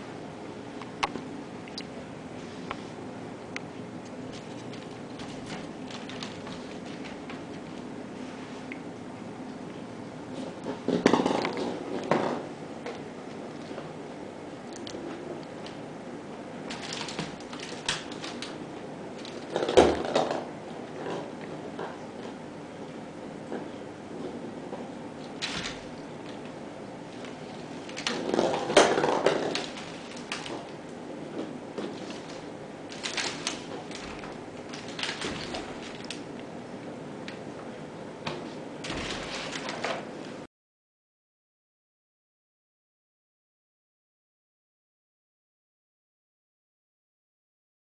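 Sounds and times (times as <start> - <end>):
wicker basket creaking: 4.3 - 7.8, 16.7 - 19.8, 25.3 - 30.9, 31.8 - 36.4, 38.8 - 40.1.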